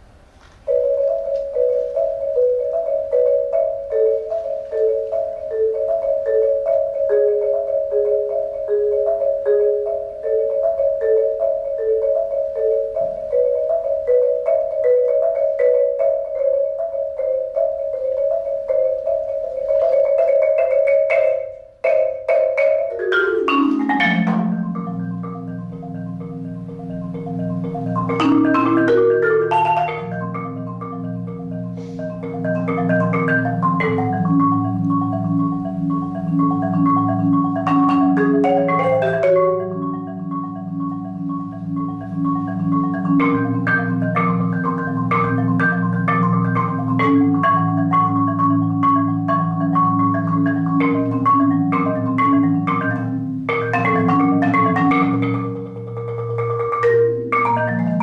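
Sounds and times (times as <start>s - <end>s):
solo marimba: 0.6s - 58.0s.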